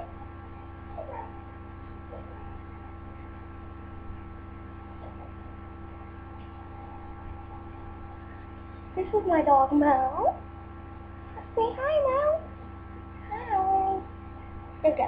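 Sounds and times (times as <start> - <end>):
electrical mains hum: 0.0 - 15.0
small dog whimpering: 0.9 - 1.4.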